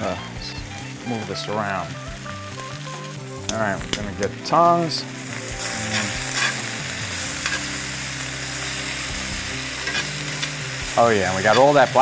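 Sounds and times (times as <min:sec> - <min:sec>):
spinach sizzling in oil: 0:00.0 - 0:12.0
metal tongs clicking: 0:09.9 - 0:10.5.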